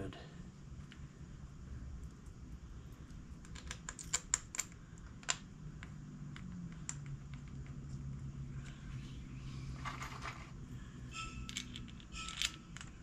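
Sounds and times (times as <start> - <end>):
metal parts clicking: 3.4 - 5.4, 11.4 - 13.0.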